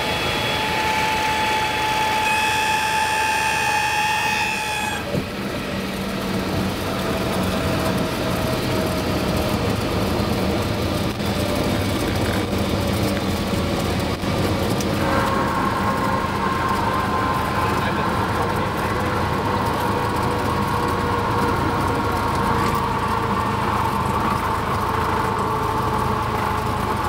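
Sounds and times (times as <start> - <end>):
plane rolling on runway: 0.0 - 27.0
rushing air: 14.2 - 21.3.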